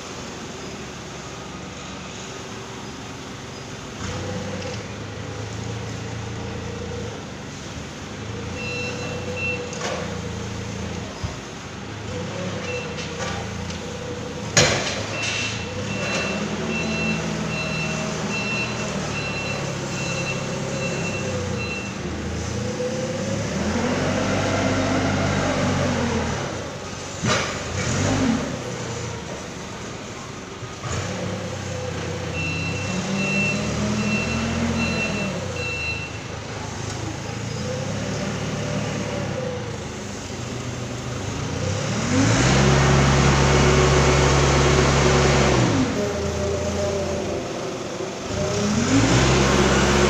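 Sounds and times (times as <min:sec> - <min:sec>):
forklift engine running: 0:00.0 - 0:50.0
reversing beeper beeps: 0:08.6 - 0:09.8, 0:15.1 - 0:22.0, 0:32.3 - 0:36.3.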